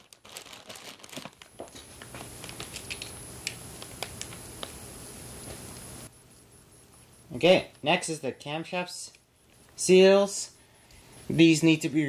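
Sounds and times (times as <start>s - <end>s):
plastic bags crinkling: 0.0s - 4.8s
faint high whine: 1.5s - 12.0s.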